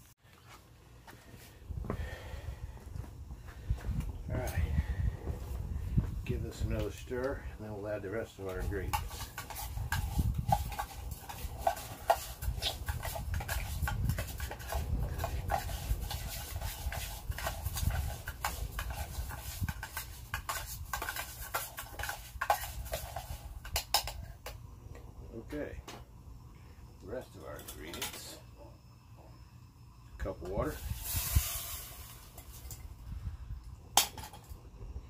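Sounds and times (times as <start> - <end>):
wind rumble on microphone: 1.6 - 7.6, 8.6 - 21.0, 30.4 - 35.0
spoon scraping metal cup: 8.5 - 24.2.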